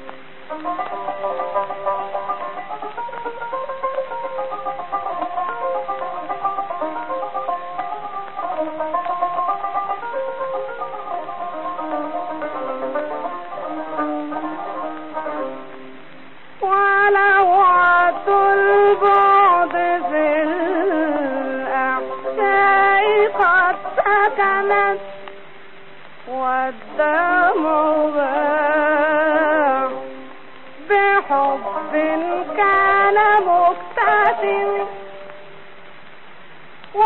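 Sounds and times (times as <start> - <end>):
woman singing with vibrato: 16.6 - 25.2, 26.2 - 35.2.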